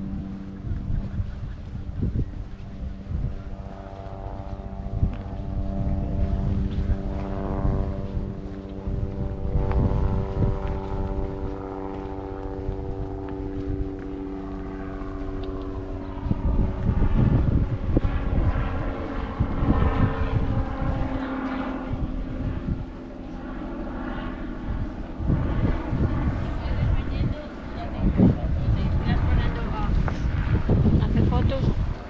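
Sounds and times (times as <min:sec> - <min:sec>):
engine-like drone: 0:00.0 - 0:32.0
wind rumble on microphone: 0:00.0 - 0:32.0
people's voices: 0:26.1 - 0:30.4.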